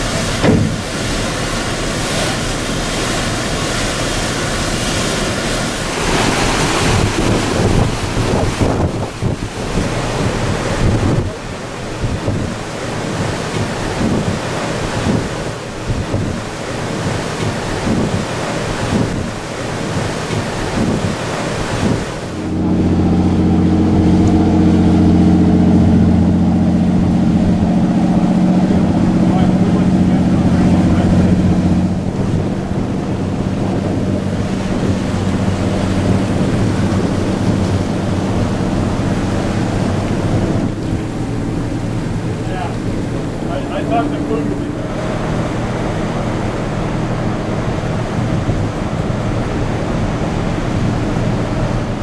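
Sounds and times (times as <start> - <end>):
water rushing in boat wake: 0.0 - 52.0
wind buffeting microphone: 0.0 - 52.0
steady low hum: 22.2 - 52.0.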